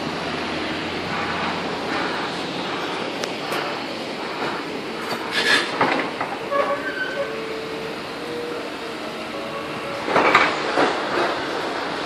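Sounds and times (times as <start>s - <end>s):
high metallic squeal: 6.4s - 7.6s.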